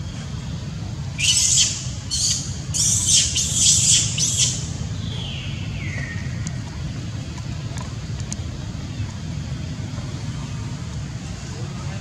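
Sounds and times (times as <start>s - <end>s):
low background rumble: 0.0s - 12.0s
macaque screaming: 1.2s - 4.6s.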